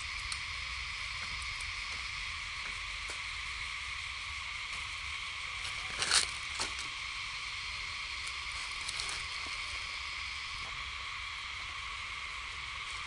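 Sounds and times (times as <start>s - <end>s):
insect chorus drone: 0.0s - 13.0s.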